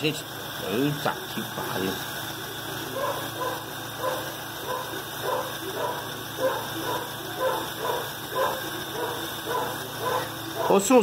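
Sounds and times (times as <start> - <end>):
dog barking: 2.9 - 10.9.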